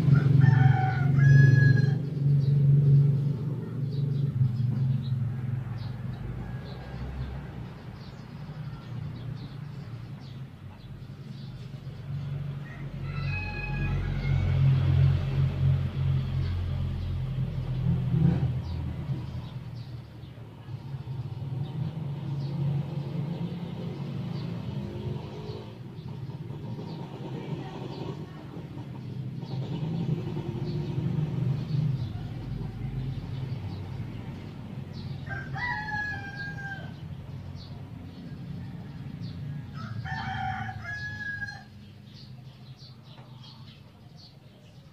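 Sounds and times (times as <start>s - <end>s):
rooster crowing: 0.0s - 2.1s, 12.6s - 15.1s, 35.2s - 37.0s, 38.6s - 41.9s
motor vehicle engine rumble: 0.0s - 44.9s.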